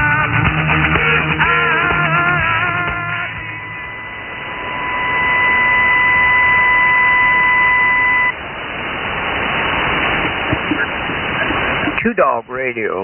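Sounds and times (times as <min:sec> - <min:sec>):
radio static hiss: 0:01.5 - 0:13.0
radio beep tone: 0:01.8 - 0:08.4.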